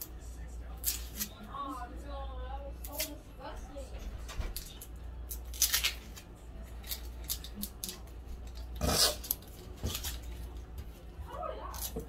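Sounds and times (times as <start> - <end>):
onion skin crackling and rustling: 4.5 - 10.6.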